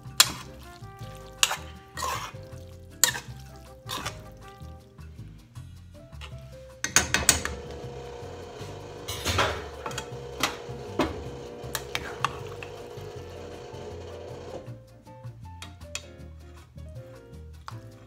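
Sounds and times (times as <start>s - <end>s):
spoon clinking against metal pot: 0.0s - 4.7s, 6.8s - 7.7s
background music: 0.0s - 18.0s.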